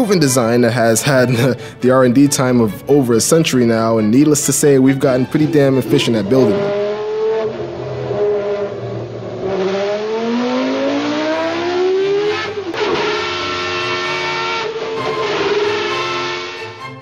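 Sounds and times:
racing engine revving: 5.2s - 17.0s.

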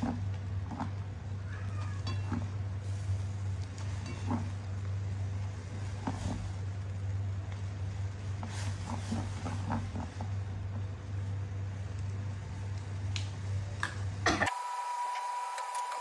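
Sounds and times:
water bubbling at a boil: 0.0s - 14.2s
gas burner hum: 0.0s - 16.0s
metal tongs clicking on pot: 2.0s - 2.4s.

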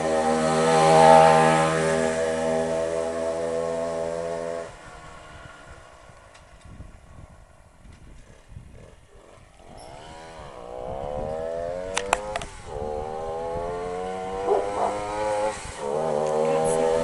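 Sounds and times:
motorcycle engine approaching: 0.0s - 17.0s
sharp clicks: 11.9s - 12.5s.

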